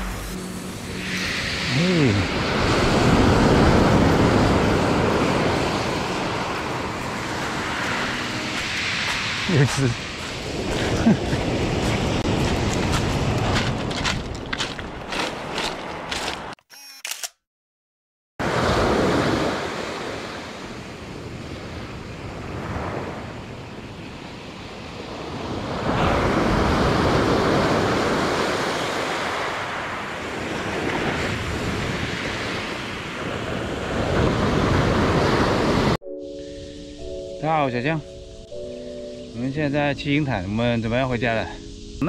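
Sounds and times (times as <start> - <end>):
waves breaking on pebble beach: 1.0 - 16.4, 25.2 - 36.0.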